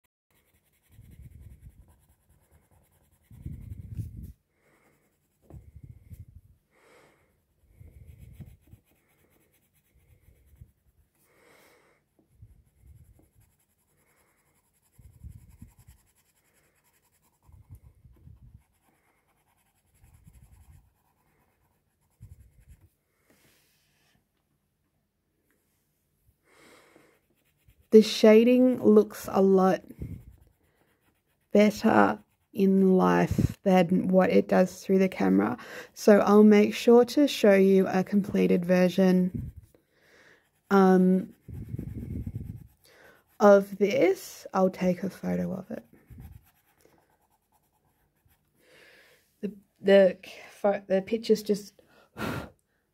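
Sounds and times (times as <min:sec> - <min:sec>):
pencil scratching on paper: 0:00.3 - 0:06.3, 0:07.6 - 0:11.3, 0:12.1 - 0:24.2, 0:26.9 - 0:48.6.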